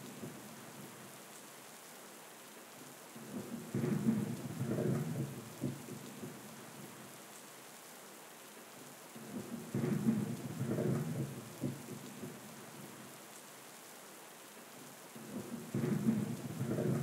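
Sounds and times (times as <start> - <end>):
rain falling: 0.0 - 17.0
thunder rumbling: 15.7 - 17.0.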